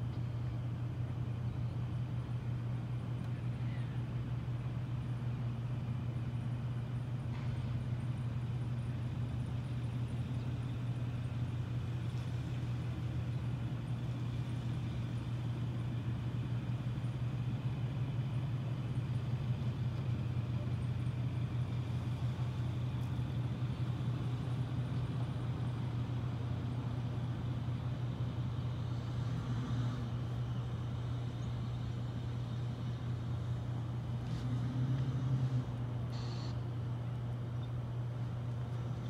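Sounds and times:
low outdoor rumble: 0.0 - 39.0.

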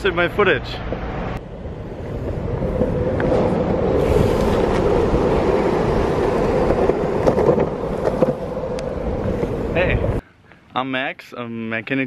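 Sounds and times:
skateboard wheels rolling on asphalt: 0.8 - 10.2
wind noise on microphone: 1.4 - 10.2.

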